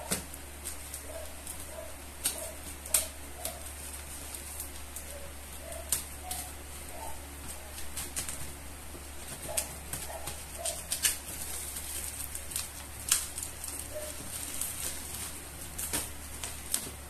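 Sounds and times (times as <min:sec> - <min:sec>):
steady low hum: 0:00.0 - 0:17.0
plastic bag crinkling and tearing: 0:09.2 - 0:17.0.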